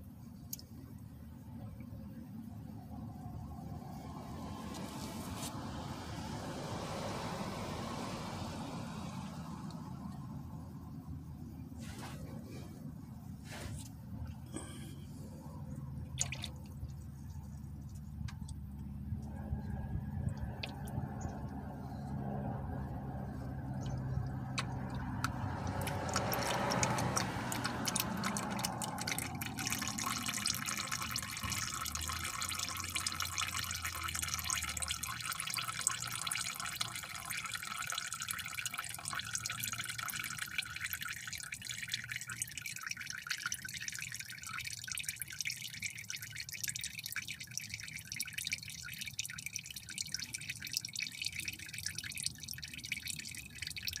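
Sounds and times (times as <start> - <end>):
oil trickling and dripping: 0.0 - 54.0.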